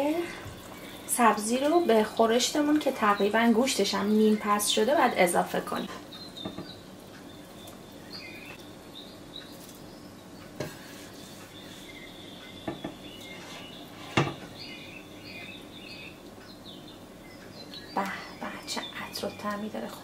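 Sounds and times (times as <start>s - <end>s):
small birds chirping: 0.0s - 20.0s
spoon scraping a pan: 10.6s - 12.1s, 12.7s - 14.5s
spoon knocking on cookware: 12.6s - 13.0s.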